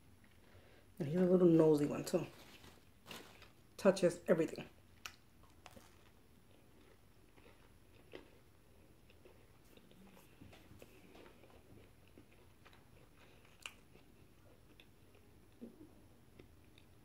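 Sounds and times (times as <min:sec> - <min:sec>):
person chewing pastry: 0:04.9 - 0:17.0.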